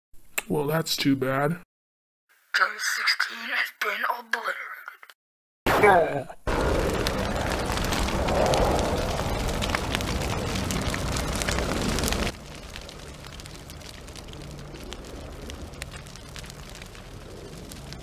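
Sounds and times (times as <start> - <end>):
fire crackling: 6.5 - 18.0.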